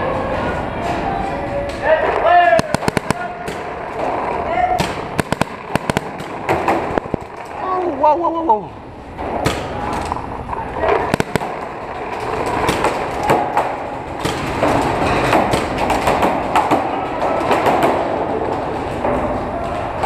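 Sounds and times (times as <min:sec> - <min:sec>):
paintball guns firing: 0:02.5 - 0:07.8, 0:09.2 - 0:10.2, 0:11.0 - 0:18.5.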